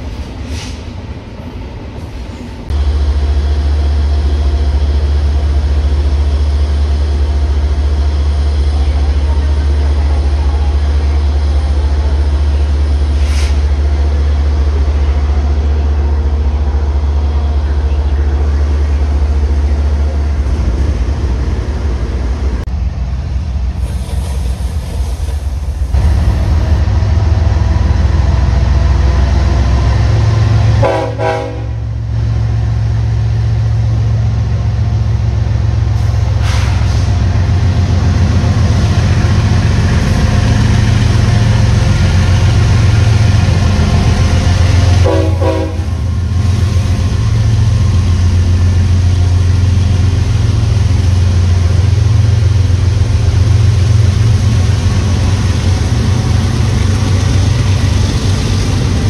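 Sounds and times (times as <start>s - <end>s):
diesel locomotives engine rumble: 0.0s - 59.0s.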